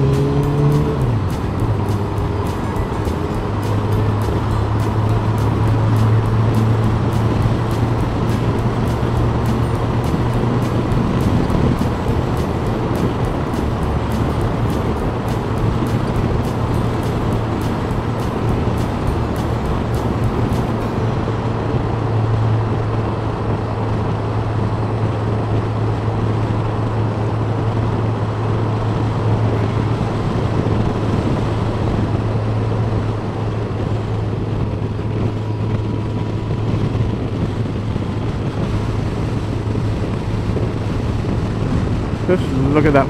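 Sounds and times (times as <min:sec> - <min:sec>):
motorcycle engine droning: 0:00.0 - 0:24.5
wind and road rush: 0:00.0 - 0:43.0.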